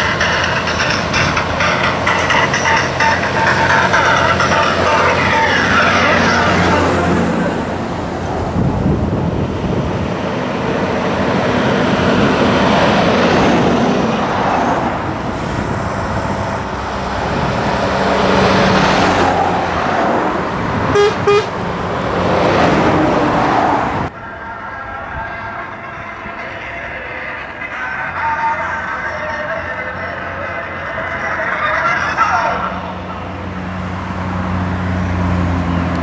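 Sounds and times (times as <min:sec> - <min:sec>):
trucks driving past: 0:00.0 - 0:36.0
truck air horn blasts: 0:20.9 - 0:21.6.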